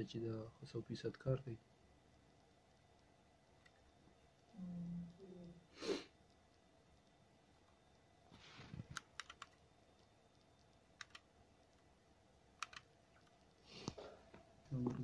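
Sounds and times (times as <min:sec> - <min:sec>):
soft rustle: 0:08.2 - 0:09.0
fingertips tapping phone screen: 0:11.0 - 0:11.2, 0:12.6 - 0:14.0.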